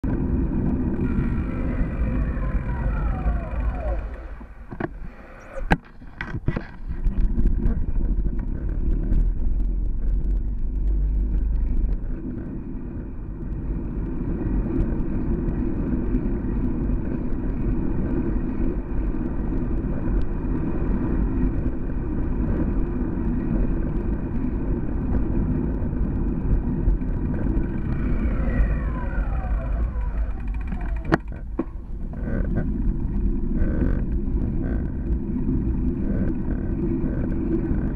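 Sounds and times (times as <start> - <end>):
falling whine: 0.0 - 5.9, 25.8 - 37.9
wind and road noise rumble: 0.0 - 37.9.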